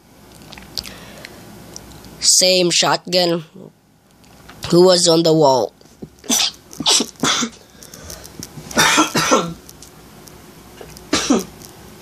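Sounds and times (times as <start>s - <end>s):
person coughing: 6.2s - 7.6s, 8.7s - 9.6s, 11.1s - 11.5s.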